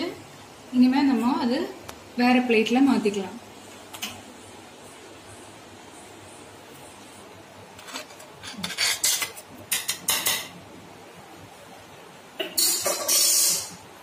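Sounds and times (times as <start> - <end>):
short hiss: 12.6 - 13.8.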